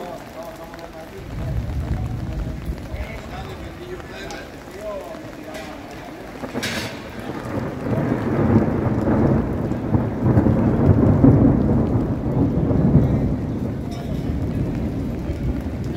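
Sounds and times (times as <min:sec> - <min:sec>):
rain falling: 0:00.0 - 0:15.9
thunder rumbling: 0:00.0 - 0:15.9.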